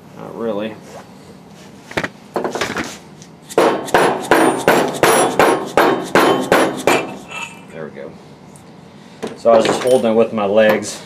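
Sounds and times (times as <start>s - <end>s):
hammer striking motor shaft: 3.5s - 7.2s.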